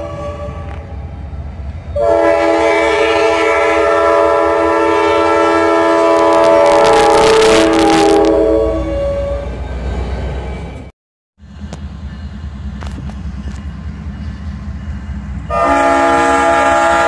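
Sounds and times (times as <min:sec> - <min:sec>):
locomotive air horn chord: 0:00.0 - 0:00.8, 0:02.0 - 0:09.6, 0:15.5 - 0:17.0
rush of passing locomotive: 0:00.0 - 0:17.0.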